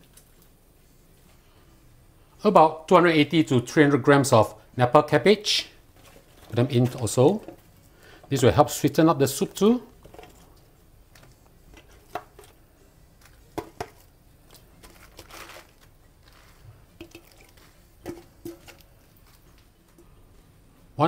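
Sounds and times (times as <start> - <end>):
soft splashes in stock: 13.8 - 20.2.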